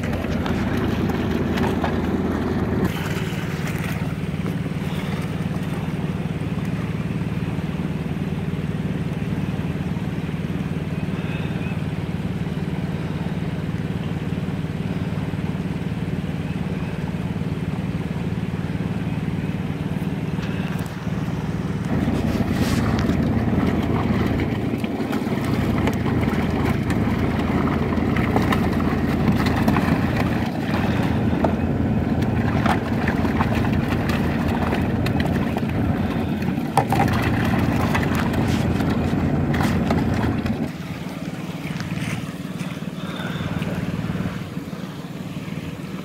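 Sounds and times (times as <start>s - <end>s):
low motor hum: 0.0s - 46.0s
water splashing and sloshing: 0.0s - 46.0s.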